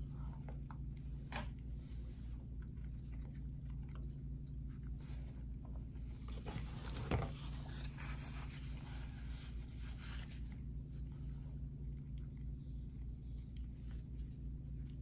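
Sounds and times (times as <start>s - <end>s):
steady low hum: 0.0s - 15.0s
person chewing food: 0.1s - 6.3s, 10.2s - 15.0s.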